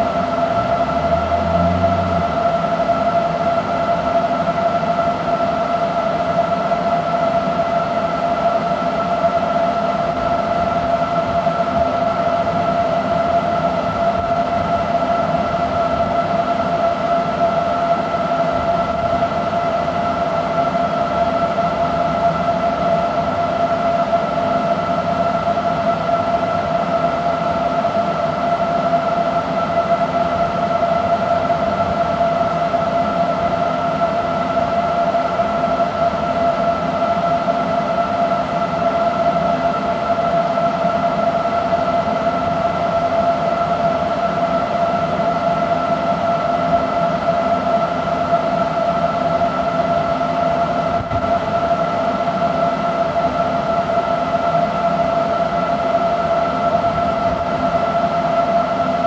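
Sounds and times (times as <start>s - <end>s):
electrical whine of charger: 0.0s - 4.7s
low hum: 0.1s - 3.2s.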